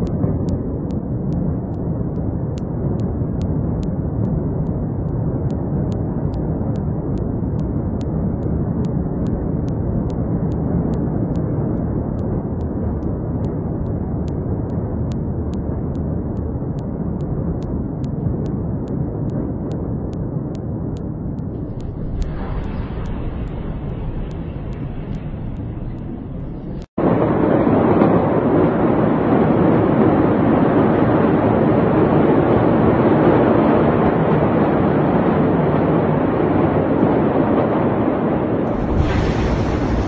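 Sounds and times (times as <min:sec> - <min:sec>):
deep rumbling noise: 0:00.0 - 0:30.0, 0:38.5 - 0:40.0.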